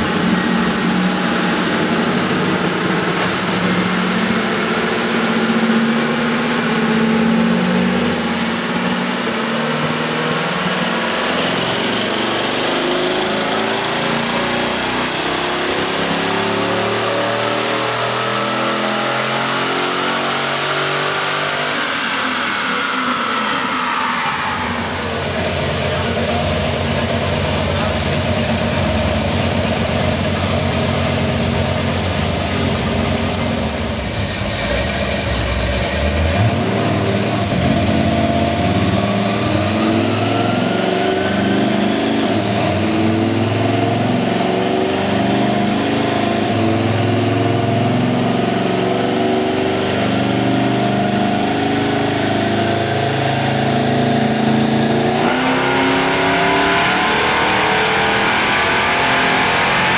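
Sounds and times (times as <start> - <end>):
car engine idling unevenly: 24.6 - 39.9.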